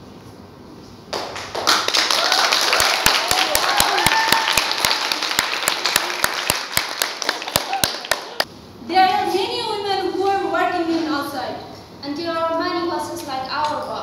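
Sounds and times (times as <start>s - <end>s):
hand claps: 1.1s - 8.5s.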